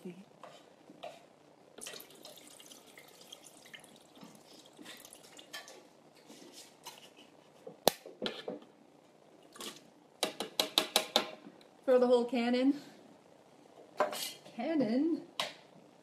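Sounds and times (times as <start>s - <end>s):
liquid splashing and dripping: 1.8s - 5.8s.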